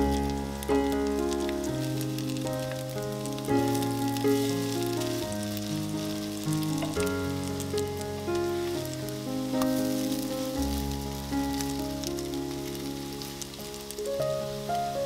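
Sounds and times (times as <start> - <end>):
background music of slow chords: 0.0 - 15.0
fritters sizzling in hot oil: 0.0 - 15.0.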